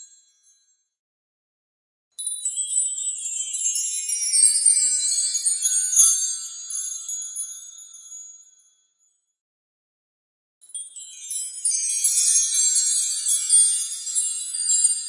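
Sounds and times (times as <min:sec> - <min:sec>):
wind chimes tinkling: 0:02.2 - 0:09.1, 0:10.7 - 0:15.0.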